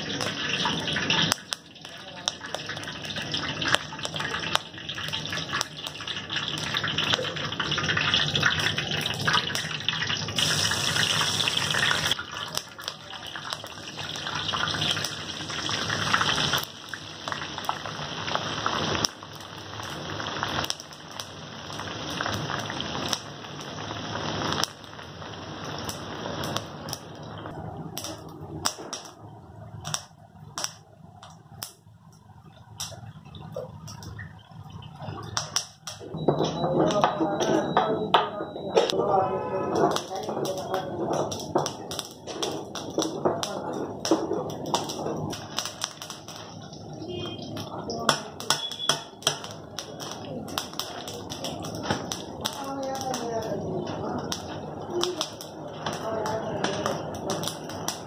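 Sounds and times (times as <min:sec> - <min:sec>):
oil sizzling and popping: 0:00.0 - 0:39.0, 0:39.7 - 0:58.0.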